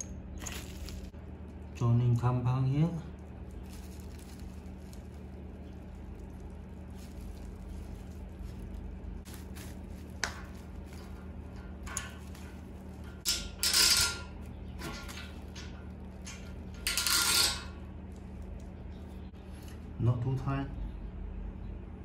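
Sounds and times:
steady low hum: 0.0 - 22.0
bubble wrap rustling: 0.4 - 1.6, 3.0 - 13.3, 14.3 - 16.9, 17.7 - 19.6.

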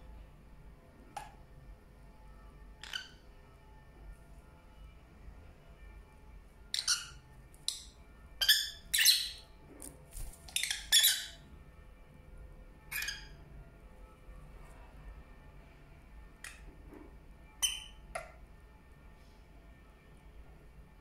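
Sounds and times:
lovebirds chirping and squawking: 2.8 - 3.2, 6.7 - 9.5, 10.1 - 11.4, 12.9 - 13.4, 17.6 - 18.0.

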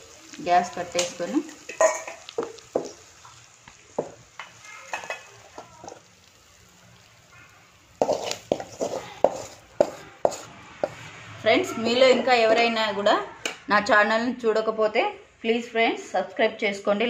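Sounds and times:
wooden spatula scraping pan: 8.0 - 11.1.

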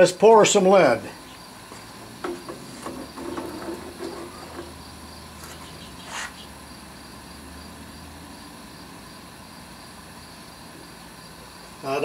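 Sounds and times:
gas burner hum and hiss: 0.0 - 12.0
short hiss: 5.4 - 6.4.

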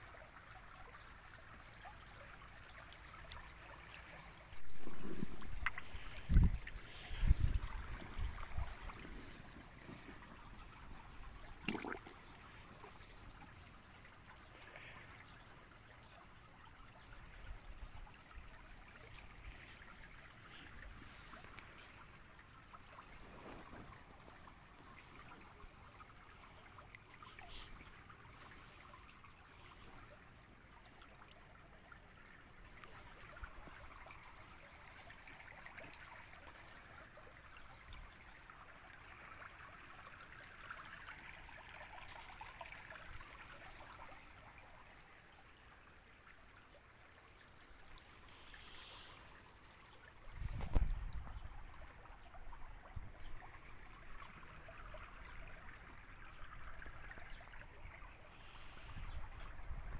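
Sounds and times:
stream trickling and lapping: 0.0 - 59.9
water splashing: 2.6 - 13.6.

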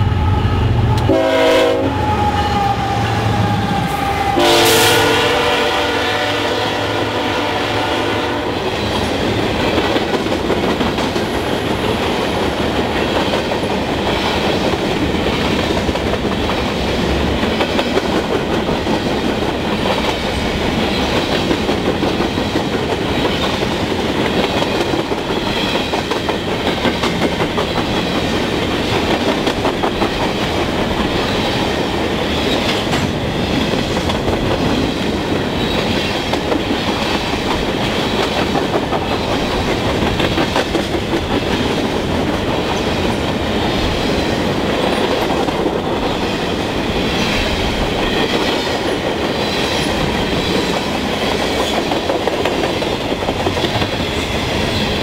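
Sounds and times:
locomotive horn: 0.0 - 8.6
freight train rumbling past: 0.0 - 55.0.

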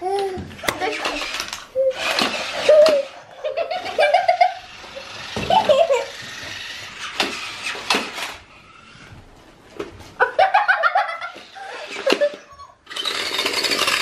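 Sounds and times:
children laughing and giggling: 1.8 - 6.5, 10.2 - 12.9.

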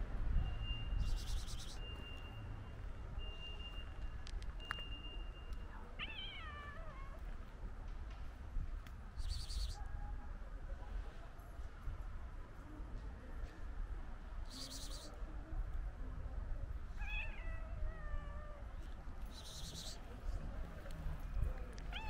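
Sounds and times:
low outdoor rumble: 0.0 - 22.0
cat meowing: 6.0 - 7.2, 17.0 - 18.8.

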